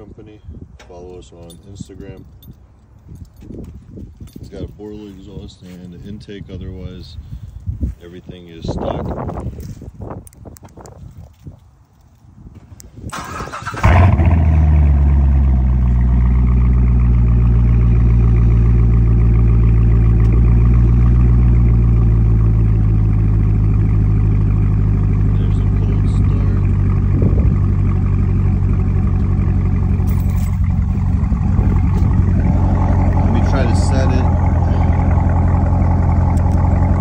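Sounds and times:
car engine idling: 0:13.2 - 0:37.0.

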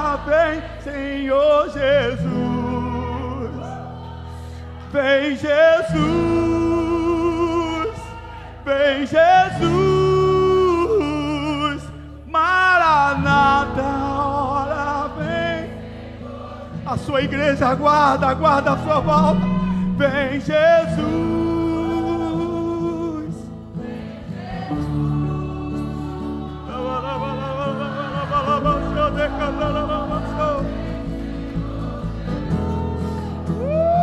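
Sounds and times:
person singing wordless vocal: 0:00.0 - 0:34.0
band playing slow music: 0:21.2 - 0:34.0.

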